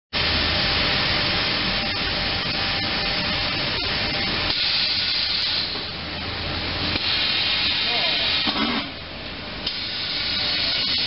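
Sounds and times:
low machine hum: 0.2 - 11.0
hiss of steam at presses: 4.5 - 5.9, 6.8 - 8.9, 9.6 - 11.0.

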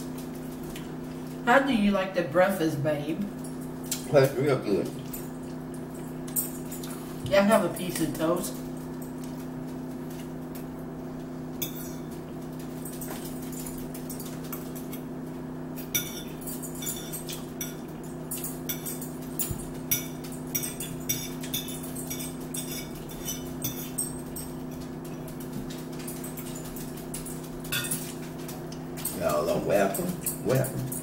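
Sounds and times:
steady low hum: 0.0 - 31.0
forks clinking on plates: 11.6 - 15.1, 15.8 - 31.0.

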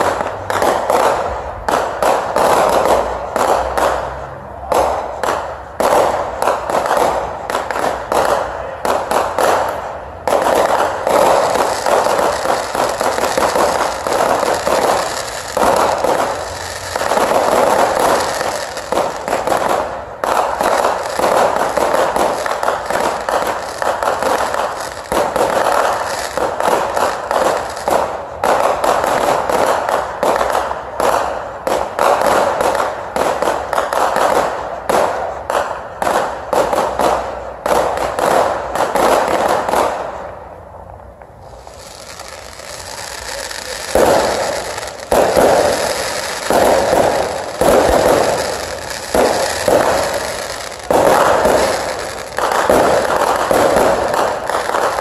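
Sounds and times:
fireworks bangs and crackling: 0.0 - 55.0.

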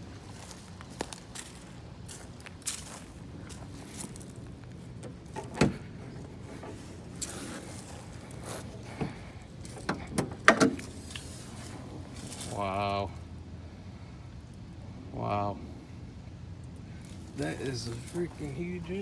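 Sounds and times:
low steady hum: 0.0 - 19.0
car hood clunks and knocks: 5.3 - 5.9, 9.8 - 10.9.

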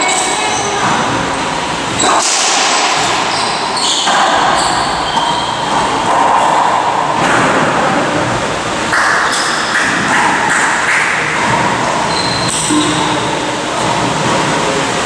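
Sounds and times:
steady rushing noise: 0.0 - 15.0
racquetball hits: 1.9 - 8.1, 8.8 - 13.1.

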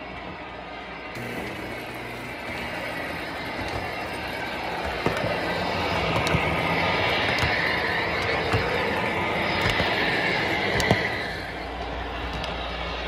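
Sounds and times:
motor whine: 0.0 - 13.0
model train rumbling on track: 1.1 - 13.0
sharp clicks: 2.5 - 12.8.

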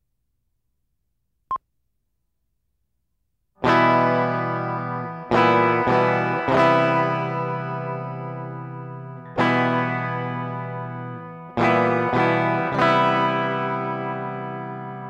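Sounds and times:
distorted electric guitar chords: 3.6 - 15.0.

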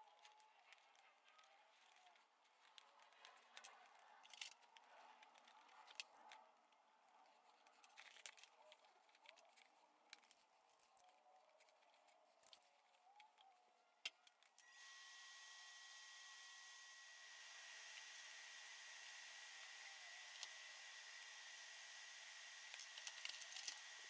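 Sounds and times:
faint tool clicks: 17.4 - 24.0.

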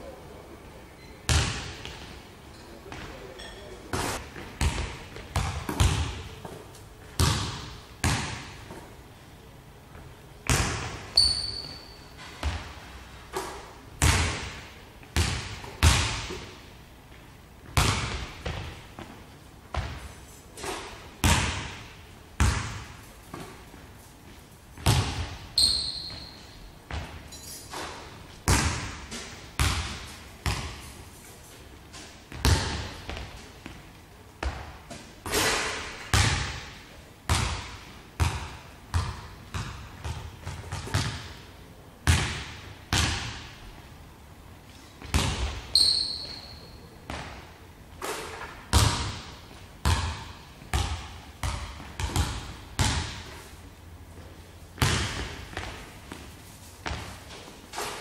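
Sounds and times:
sneaker squeaks: 0.9 - 4.2, 11.1 - 12.6, 25.5 - 28.2, 45.0 - 46.9
basketball bouncing on wooden floor: 4.4 - 6.6, 7.2 - 8.6, 10.5 - 12.8, 17.6 - 20.0, 20.6 - 23.6, 24.8 - 30.9, 32.3 - 33.8, 37.3 - 41.4, 45.0 - 47.4, 48.7 - 53.3, 54.8 - 56.2, 56.8 - 58.0.

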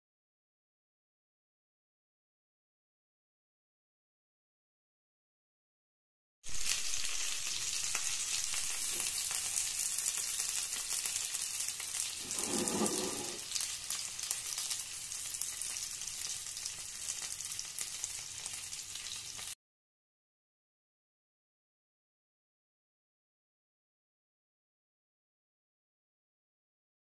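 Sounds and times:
food sizzling in oil: 6.5 - 19.6.

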